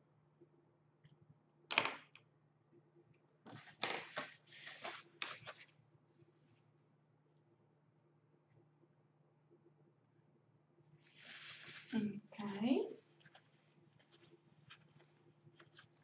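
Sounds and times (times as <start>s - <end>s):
paper tissue rustling: 3.6s - 5.8s, 11.0s - 16.0s.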